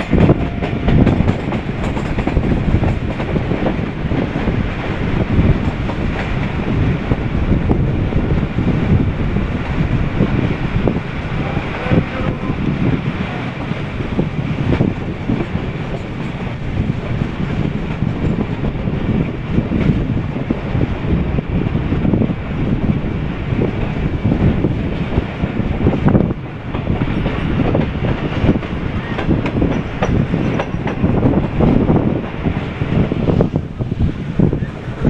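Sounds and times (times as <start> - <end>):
wheels clacking over rail joints: 0.0 - 7.9, 25.8 - 35.0
train wheels rumbling on rails: 0.0 - 35.0.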